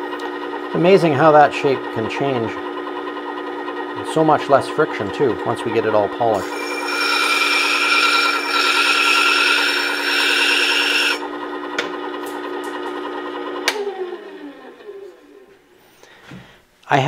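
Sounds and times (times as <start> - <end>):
sharpener motor hum: 6.3 - 11.5
steel grinding on abrasive disc: 6.4 - 11.2.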